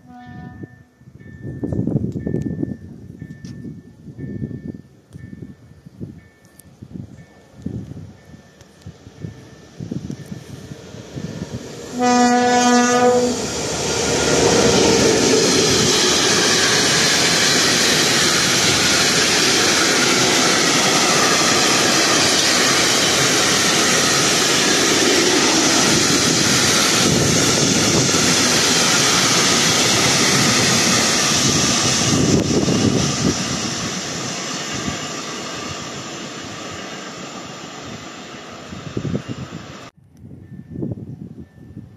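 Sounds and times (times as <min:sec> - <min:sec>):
locomotive horn blast: 0:00.0 - 0:00.7, 0:11.8 - 0:15.7
diesel locomotive running: 0:00.0 - 0:39.9.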